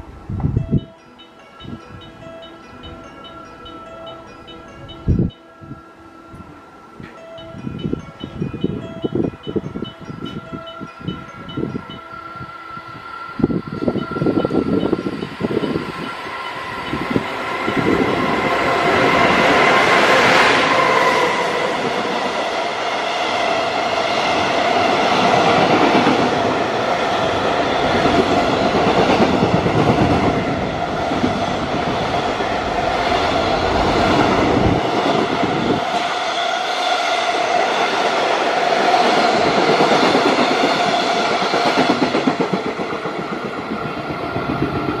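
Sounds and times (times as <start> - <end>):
freight train wheels rumbling: 6.4 - 45.0
clickety-clack over rail joints: 39.0 - 45.0.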